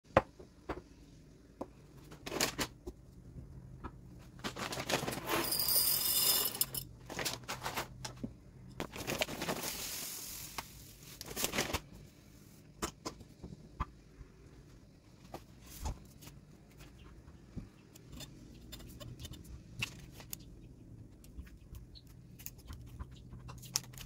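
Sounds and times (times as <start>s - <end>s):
coffee beans pouring into jar: 5.2s - 6.8s
glass jars clinking on stone: 5.3s - 6.9s.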